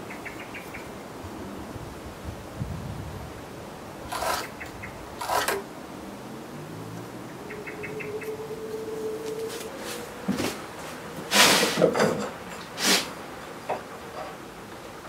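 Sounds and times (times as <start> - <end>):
wood scraping on wood: 4.1 - 4.6, 5.2 - 5.6, 9.2 - 14.5.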